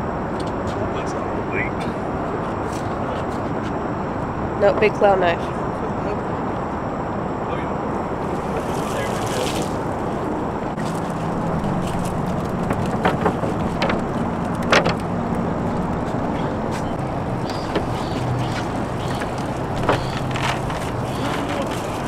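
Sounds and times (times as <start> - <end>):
low motor hum: 0.0 - 22.0
sharp clicks and knocks: 11.8 - 16.2.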